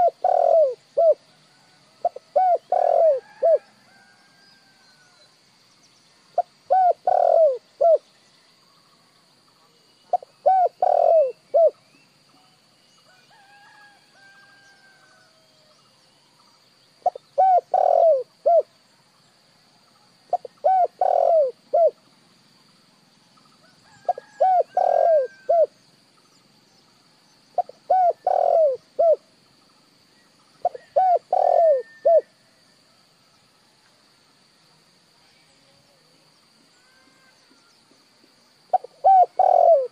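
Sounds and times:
dove cooing: 0.0 - 1.2, 2.0 - 3.6, 6.4 - 8.0, 10.1 - 11.8, 17.0 - 18.7, 20.3 - 22.0, 24.0 - 25.7, 27.6 - 29.2, 30.6 - 32.3, 38.7 - 39.9.

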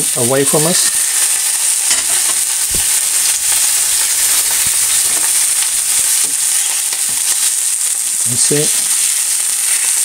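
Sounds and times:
fish frying in oil: 0.0 - 10.0.

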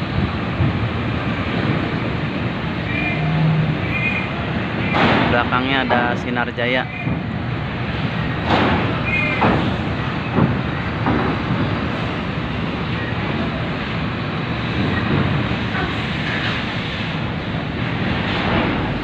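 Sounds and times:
coach diesel engine: 0.0 - 19.0
ferry engine drone: 0.0 - 19.0.

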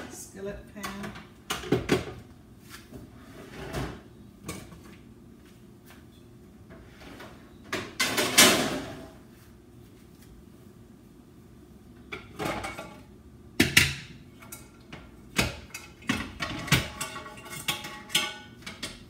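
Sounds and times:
pans knocking together: 13.6 - 19.0.

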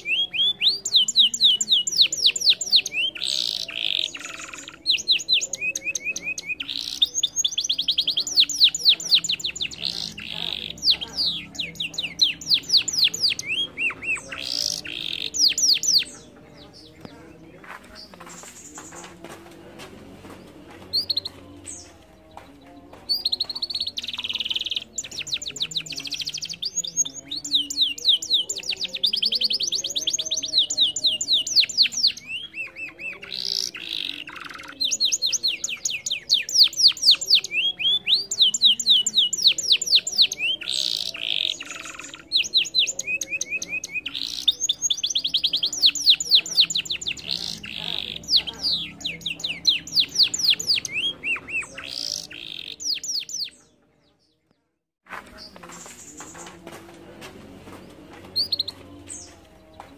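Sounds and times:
canary singing rapid trills: 0.0 - 17.1, 23.1 - 53.7.

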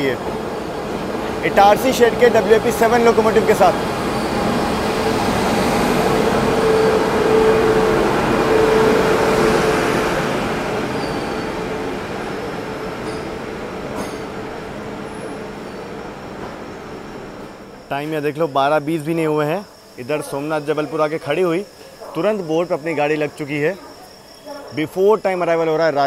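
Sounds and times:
train wheels squealing: 0.0 - 14.4, 15.0 - 26.0
train coaches rumbling past: 0.0 - 24.7.

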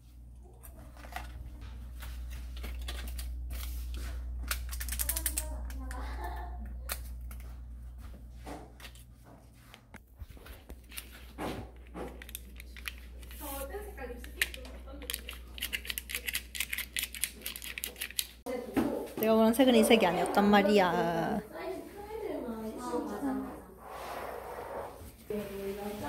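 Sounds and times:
steady low hum: 0.0 - 16.6
dry clicks and crinkles: 0.5 - 7.6, 9.7 - 18.5.

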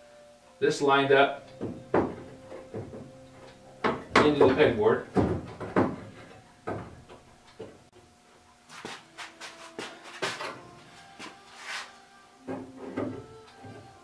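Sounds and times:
tools knocking and clattering: 1.5 - 7.8.

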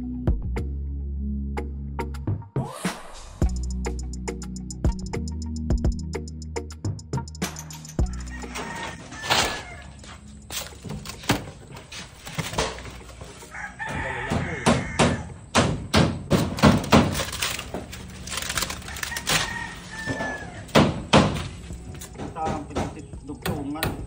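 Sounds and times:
rooster crowing: 8.0 - 10.2, 13.3 - 15.5, 18.3 - 21.0.

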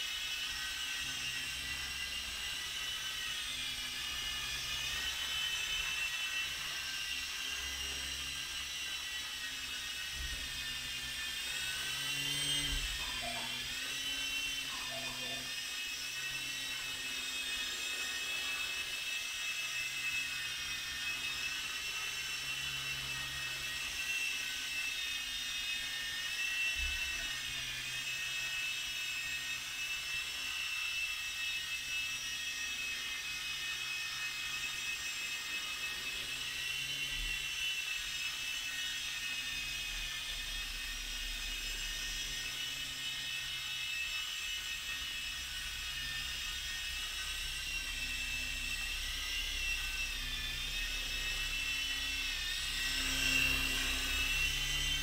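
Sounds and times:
toy helicopter rotors whining: 0.0 - 55.0.

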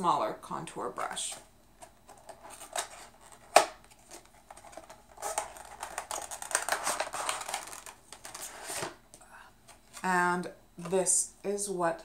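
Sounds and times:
packaging rustling and scraping: 1.2 - 10.2
packaging snapping: 2.1 - 9.0.

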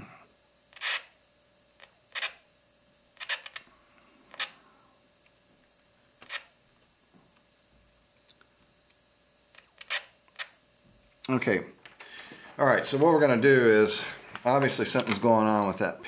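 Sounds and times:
faint steady tone: 0.0 - 6.7.

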